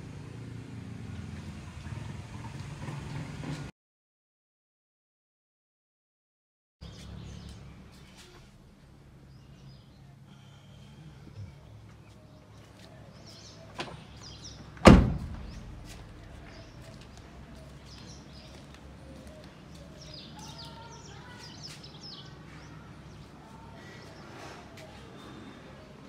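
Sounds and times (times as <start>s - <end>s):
car door slamming: 14.8s - 15.9s.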